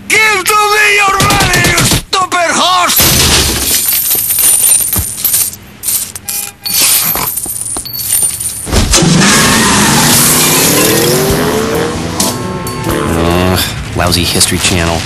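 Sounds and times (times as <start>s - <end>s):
coins clattering: 3.5s - 8.7s.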